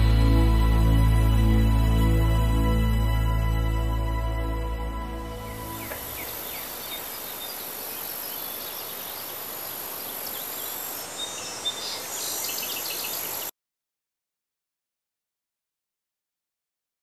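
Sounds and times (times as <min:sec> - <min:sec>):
high insect drone: 0:05.0 - 0:13.5
faint bird chirps: 0:05.5 - 0:13.5.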